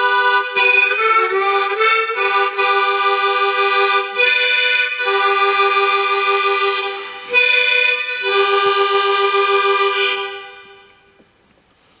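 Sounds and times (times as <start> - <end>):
harmonica playing chords: 0.0 - 11.2.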